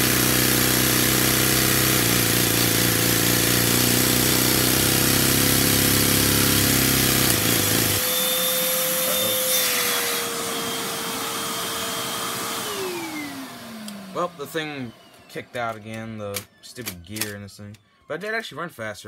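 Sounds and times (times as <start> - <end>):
small engine running fast: 0.0 - 15.9
vacuum cleaner whine: 0.0 - 18.3.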